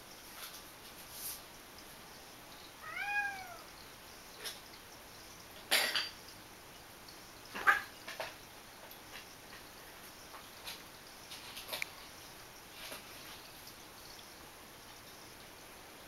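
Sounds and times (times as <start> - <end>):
cat meowing: 2.8 - 3.7.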